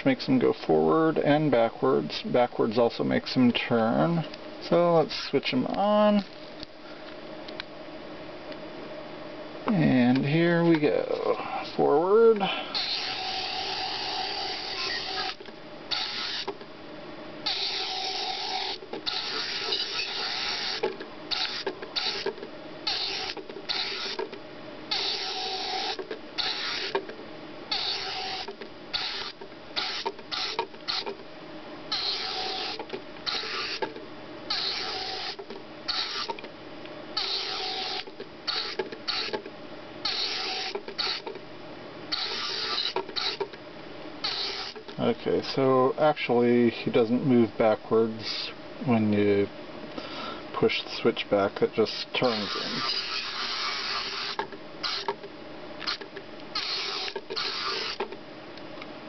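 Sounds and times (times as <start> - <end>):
small electric motor whirring: 12.7 - 16.6, 17.4 - 24.3, 24.9 - 27.1, 27.7 - 31.2, 31.9 - 33.9, 34.5 - 36.4, 37.2 - 39.4, 40.0 - 41.4, 42.1 - 43.6, 44.2 - 44.9, 52.2 - 55.2, 55.8 - 58.1.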